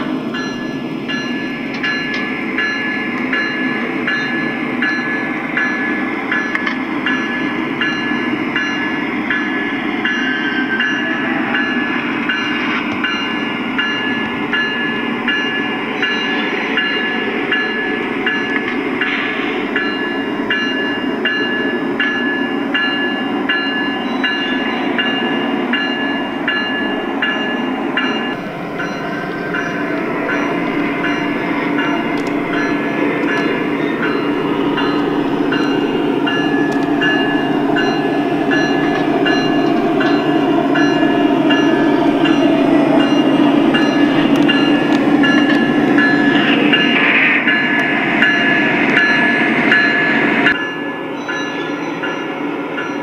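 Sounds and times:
diesel engine rumble: 28.3 - 46.8.

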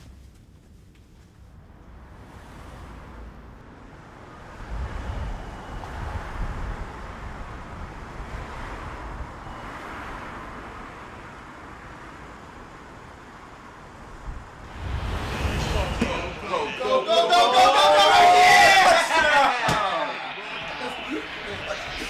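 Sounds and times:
wind and passing traffic: 0.9 - 22.0
low rumbling: 14.2 - 17.3, 18.8 - 22.0.

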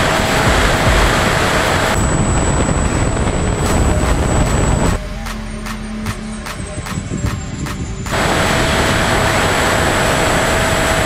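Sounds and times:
wind rushing over camera: 0.0 - 5.0
electric jet high whine: 0.0 - 11.0.

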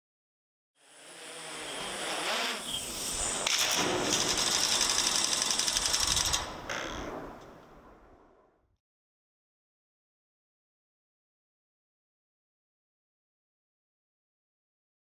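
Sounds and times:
mechanical rattling and whirring: 3.4 - 6.5.

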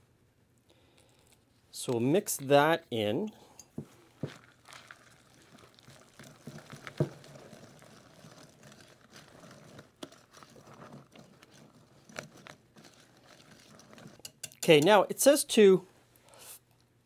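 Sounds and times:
whisk stirring batter: 4.2 - 15.1
whisk clicking on glass: 12.3 - 15.0.

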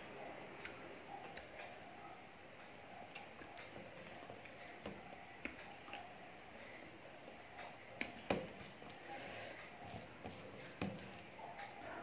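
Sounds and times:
fingers mixing rice on steel plate: 3.0 - 11.8.

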